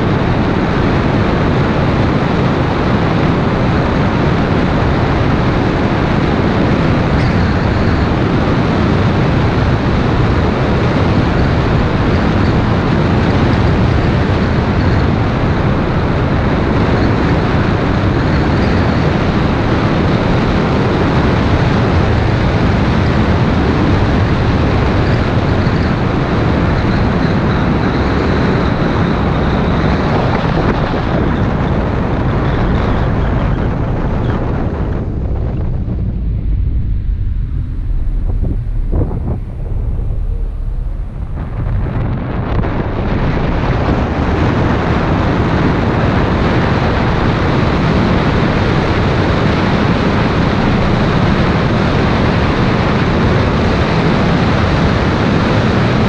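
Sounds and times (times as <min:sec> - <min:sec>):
wind and road noise: 0:00.0 - 0:56.0.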